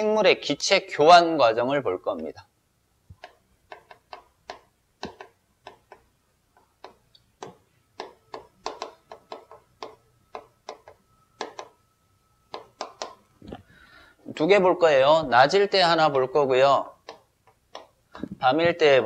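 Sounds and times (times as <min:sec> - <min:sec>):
chalk tapping on chalkboard: 0:03.1 - 0:11.8, 0:12.5 - 0:13.2, 0:17.0 - 0:18.0.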